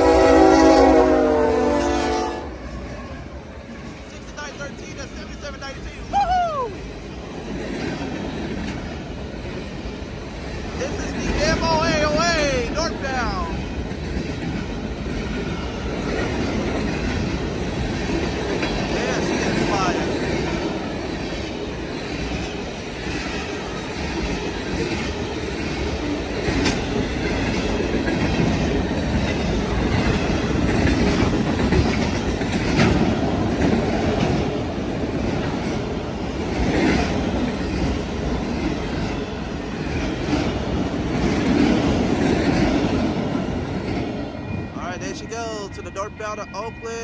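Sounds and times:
freight train passing: 0:00.0 - 0:47.0
wheels clicking over rail joints: 0:07.4 - 0:44.2.

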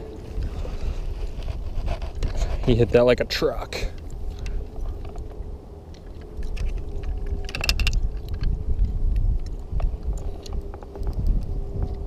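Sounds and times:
wind rumble on microphone: 0:00.0 - 0:12.0
kayak gear clicks and knocks: 0:03.9 - 0:12.0.

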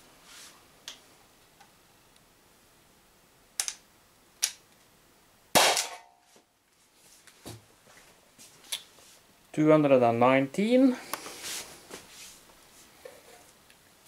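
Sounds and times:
sharp clicks: 0:03.6 - 0:03.8
air pistol shot: 0:05.6 - 0:06.1.

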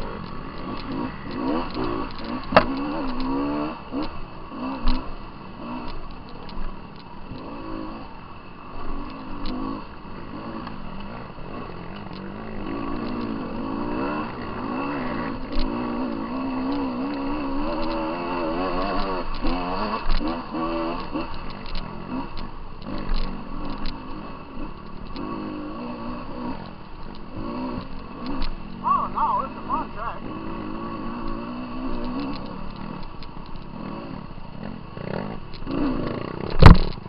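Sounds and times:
dirt bike engine revving: 0:00.0 - 0:06.0, 0:07.3 - 0:37.0
sharp knocks: 0:02.5 - 0:02.8.

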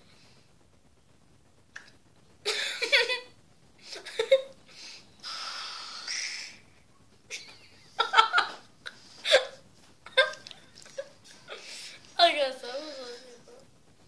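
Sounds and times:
air blown through straw into slime: 0:05.2 - 0:06.6.

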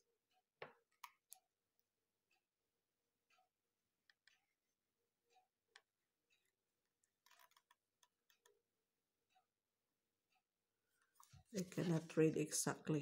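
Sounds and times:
faint handling clicks and rustle: 0:11.0 - 0:12.4.

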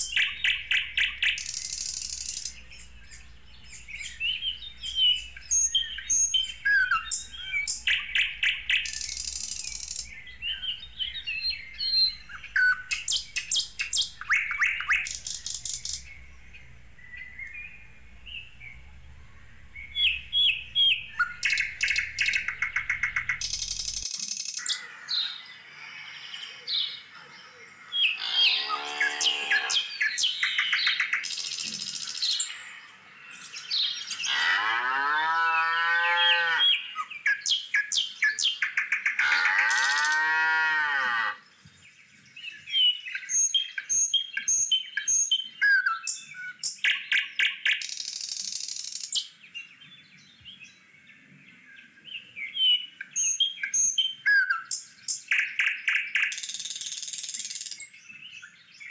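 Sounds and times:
birds chirping: 0:00.0 - 0:58.9
cattle mooing: 0:28.2 - 0:29.8, 0:34.2 - 0:36.8, 0:39.2 - 0:41.4.

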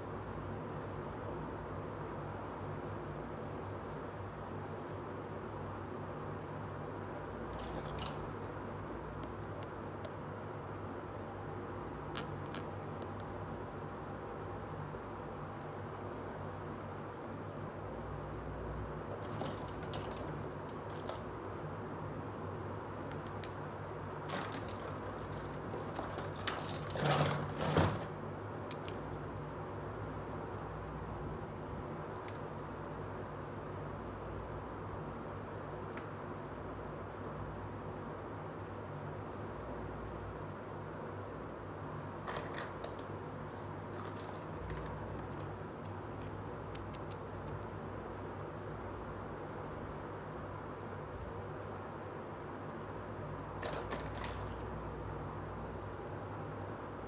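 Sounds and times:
background hiss and hum: 0:00.0 - 0:57.0
plastic rattling clatter: 0:24.3 - 0:28.1, 0:53.6 - 0:54.6.

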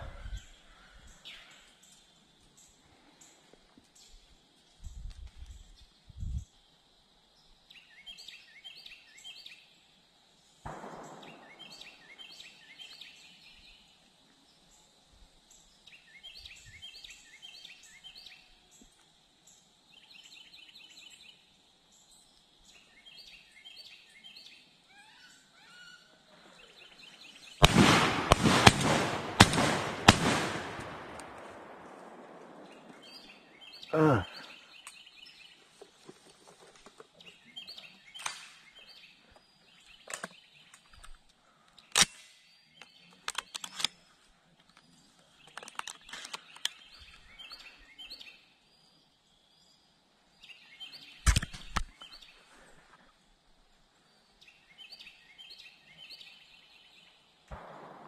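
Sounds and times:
small birds chirping: 0:00.0 - 0:57.6
gunshot echoes through trees: 0:10.6 - 0:13.8, 0:27.2 - 0:35.5, 0:38.1 - 0:39.0, 0:57.5 - 0:58.0
loud sharp shotgun shots: 0:10.7 - 0:12.8, 0:27.6 - 0:33.4, 0:57.5 - 0:58.0.

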